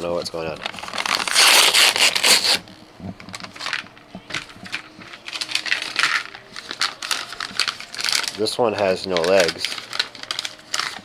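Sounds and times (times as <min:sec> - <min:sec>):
foil pack crinkling: 0:00.3 - 0:02.6, 0:03.2 - 0:11.0
plastic pieces rattling in tray: 0:04.4 - 0:11.0.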